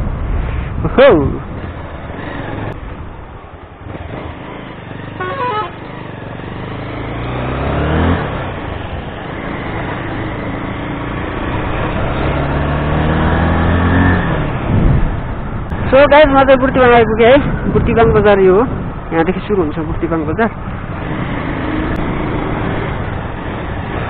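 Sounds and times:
motorcycle engine accelerating: 1.4s - 16.2s, 20.6s - 24.0s
horn honking: 5.1s - 6.0s.

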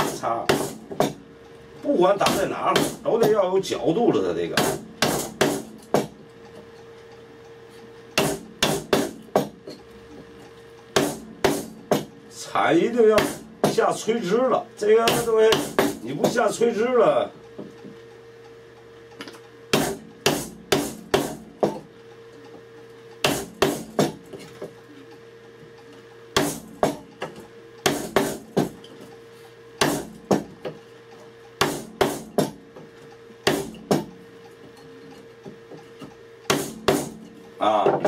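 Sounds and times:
hammer striking chisel into wood: 0.0s - 1.2s, 2.2s - 3.4s, 4.6s - 6.2s, 8.2s - 9.6s, 11.0s - 12.1s, 13.1s - 13.8s, 15.1s - 16.4s, 19.7s - 21.8s, 23.2s - 24.2s, 26.4s - 27.0s, 27.8s - 28.8s, 29.8s - 30.8s, 31.6s - 32.6s, 33.4s - 34.1s, 36.5s - 37.2s.

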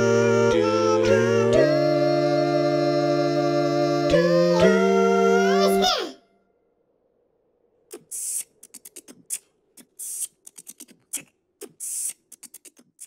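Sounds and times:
hissing bursts: 7.9s - 13.0s.

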